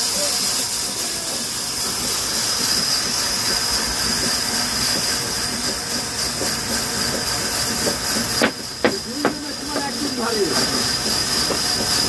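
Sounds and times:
saw cutting hardwood: 7.8 - 11.7.

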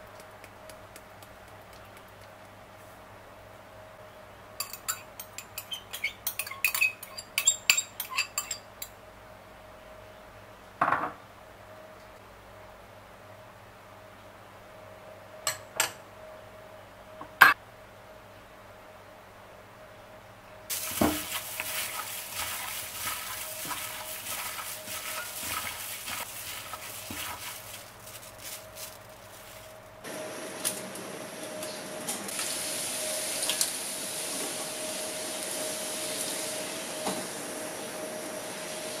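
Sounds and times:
oil sizzling in a pan: 20.7 - 29.7, 32.3 - 39.0
plastic glove crinkling: 20.7 - 30.1
wet squelching of meat: 20.8 - 29.8.

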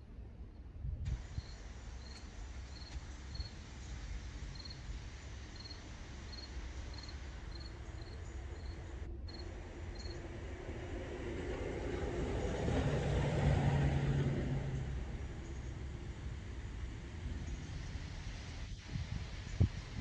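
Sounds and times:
low steady rumble: 0.0 - 20.0
cricket chirping: 1.2 - 10.3.

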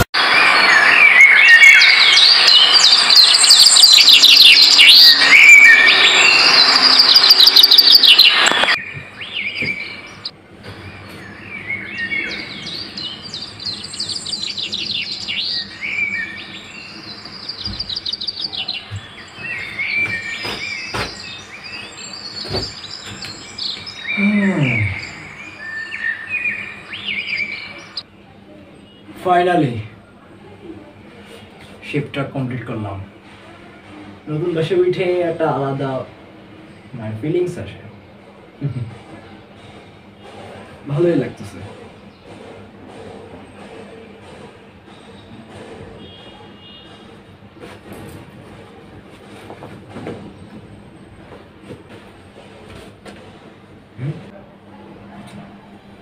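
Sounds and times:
small birds chirping: 0.3 - 28.1, 39.3 - 47.2.

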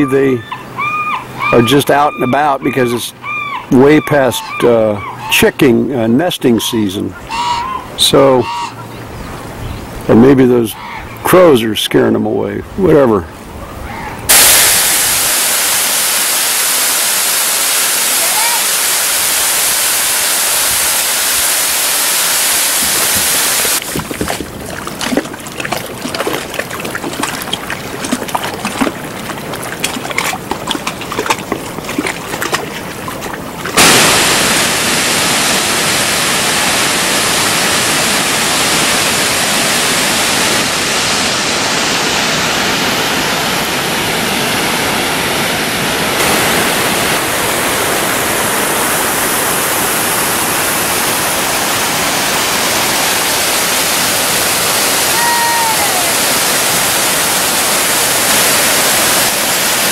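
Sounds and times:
waterfall rushing: 14.3 - 30.5, 33.4 - 59.9
stream running over gravel: 14.3 - 59.9
water splashing: 14.3 - 59.9.

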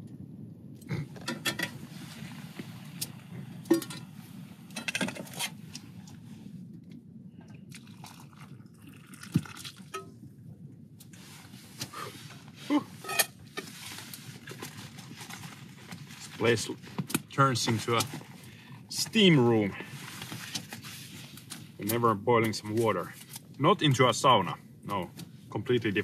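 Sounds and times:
low steady rumble: 0.0 - 26.0
water pouring into mug: 7.7 - 10.0.

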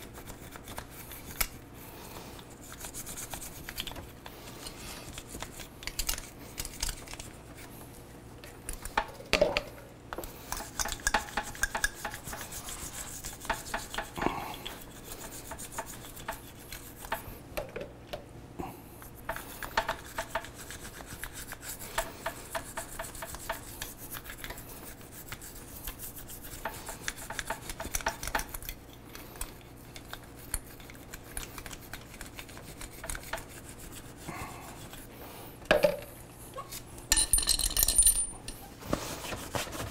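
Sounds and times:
brush scrubbing metal: 10.5 - 17.2, 19.1 - 28.6, 29.6 - 35.2.

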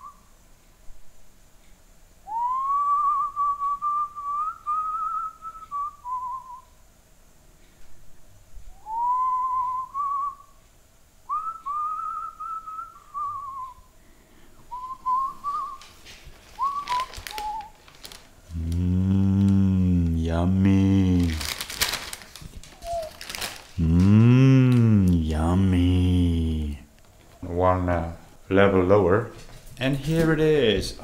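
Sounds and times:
person whistling a tune: 2.3 - 6.7, 8.7 - 10.6, 11.3 - 13.9, 14.7 - 15.8, 16.6 - 17.8, 22.8 - 23.2
paper bag rustling: 15.5 - 18.8, 20.0 - 23.9.

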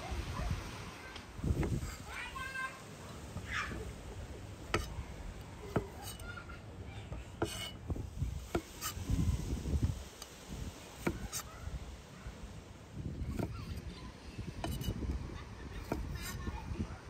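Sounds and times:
knife striking wooden cutting board: 4.7 - 5.0, 5.7 - 6.2, 7.4 - 7.8, 8.4 - 9.0, 11.0 - 11.5, 13.3 - 13.5, 14.6 - 15.0, 15.8 - 16.4.

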